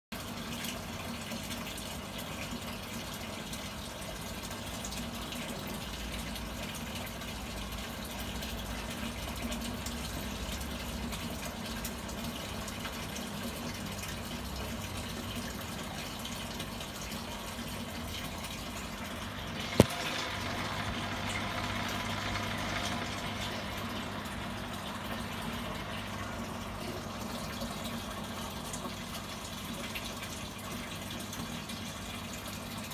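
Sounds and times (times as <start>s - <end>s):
aquarium water splashing: 0.2s - 32.9s
sharp click: 19.7s - 20.3s.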